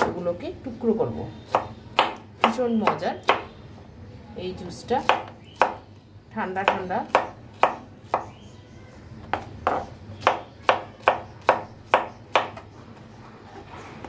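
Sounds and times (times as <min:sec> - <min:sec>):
knife chopping on cutting board: 0:06.6 - 0:08.3, 0:09.3 - 0:12.6.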